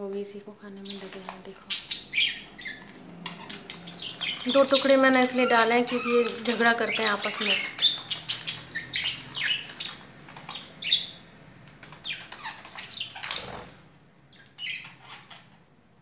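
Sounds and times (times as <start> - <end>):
budgerigars chirping: 0.8 - 15.5
wings fluttering: 0.9 - 11.0, 11.7 - 14.0.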